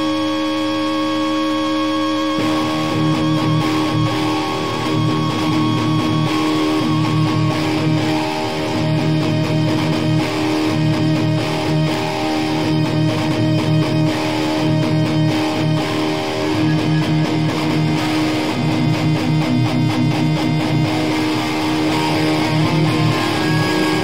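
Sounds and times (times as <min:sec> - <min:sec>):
hardcore band playing: 0:14.3 - 0:24.0.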